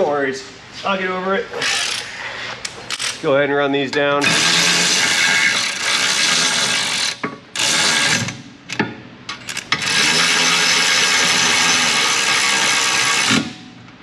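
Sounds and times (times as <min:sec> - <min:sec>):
power tool spinning bolts: 0:04.2 - 0:08.4, 0:09.4 - 0:13.5.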